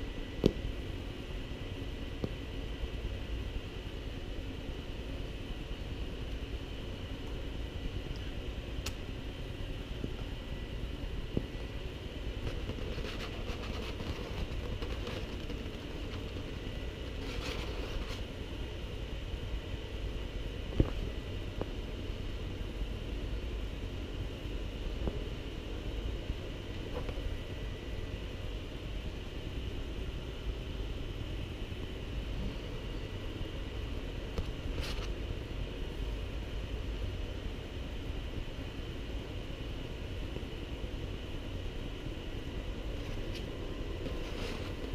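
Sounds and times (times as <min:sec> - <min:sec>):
low rumble and hiss: 0:00.0 - 0:44.9
camera handling rumble: 0:12.4 - 0:16.5
scratchy rustle: 0:12.5 - 0:16.5, 0:17.1 - 0:18.2, 0:44.0 - 0:44.9.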